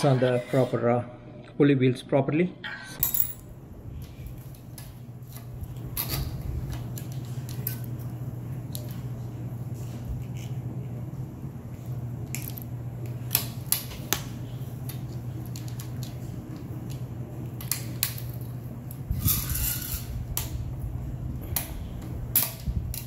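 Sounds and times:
metal scrape: 0:19.2 - 0:20.1.

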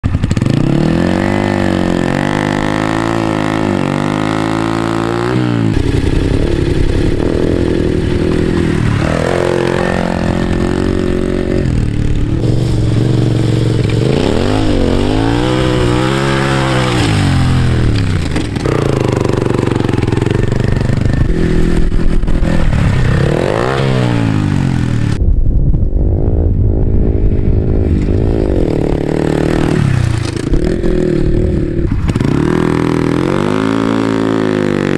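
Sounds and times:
motorcycle engine revving: 0:00.0 - 0:25.2, 0:25.9 - 0:34.9.

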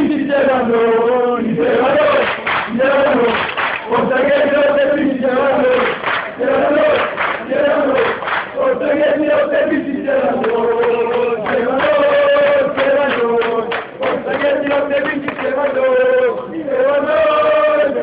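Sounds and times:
football supporters chanting: 0:00.0 - 0:18.0.

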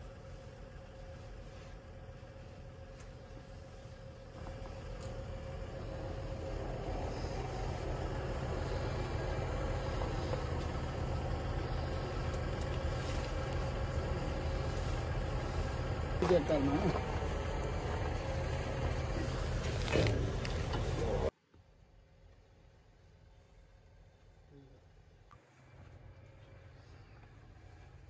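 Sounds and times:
diesel truck engine idling: 0:00.0 - 0:21.3.

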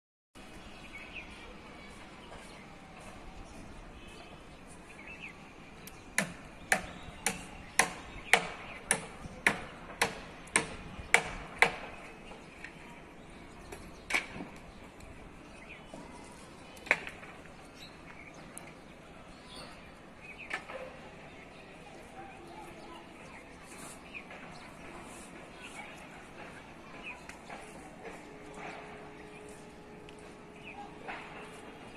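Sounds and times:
faint steady background noise: 0:00.4 - 0:31.9.

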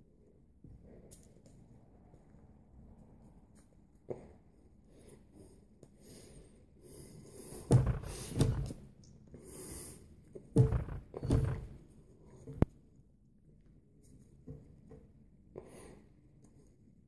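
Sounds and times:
hands thudding on table: 0:07.7 - 0:08.8, 0:10.6 - 0:11.8.

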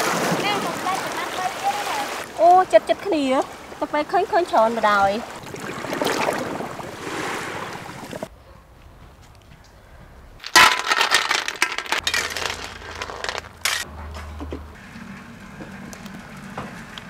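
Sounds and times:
shells clattering in metal pan: 0:10.4 - 0:13.9.

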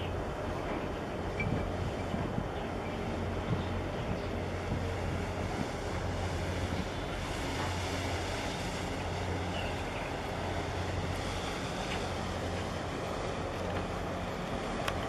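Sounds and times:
waves washing: 0:00.0 - 0:15.0
wind noise on microphone: 0:01.1 - 0:15.0.

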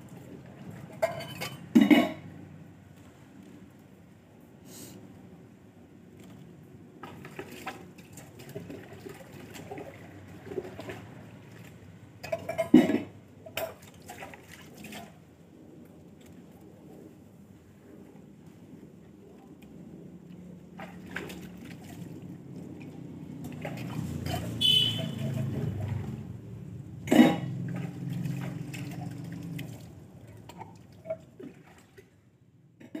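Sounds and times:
metal dishes clinking and scraping: 0:00.9 - 0:02.2, 0:12.2 - 0:13.8
metal utensils clattering: 0:01.0 - 0:02.2, 0:12.2 - 0:13.8
water sloshing: 0:06.2 - 0:15.4, 0:20.5 - 0:32.3.

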